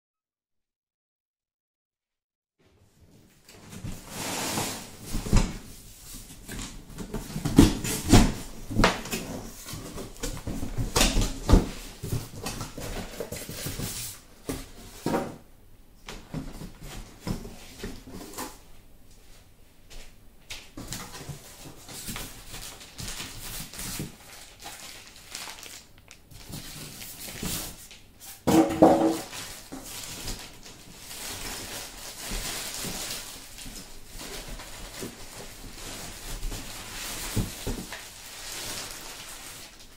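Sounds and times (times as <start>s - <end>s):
cardboard box knocks and rustling: 28.5s - 29.3s.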